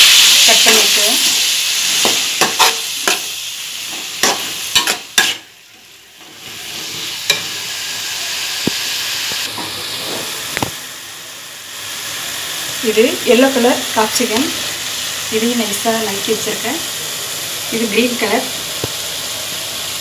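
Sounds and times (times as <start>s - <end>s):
vegetables sizzling in oil: 0.0s - 20.0s
metal spatula scraping pan: 1.9s - 5.5s.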